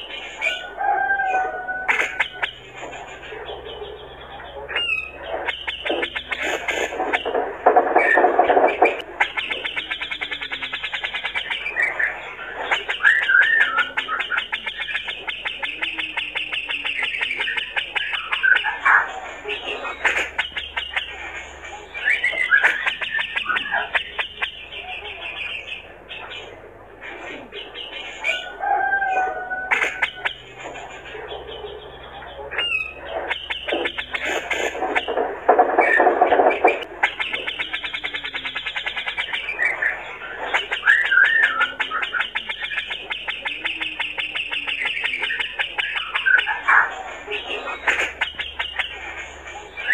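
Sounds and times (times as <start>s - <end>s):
bird chattering rattle call: 4.7s - 26.3s, 32.5s - 49.9s.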